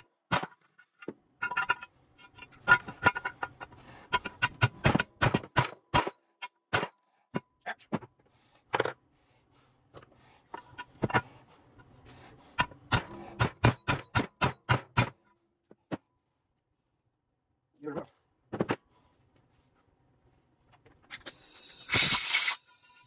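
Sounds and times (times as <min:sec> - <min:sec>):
metal parts knocking and clicking: 0:00.3 - 0:06.9.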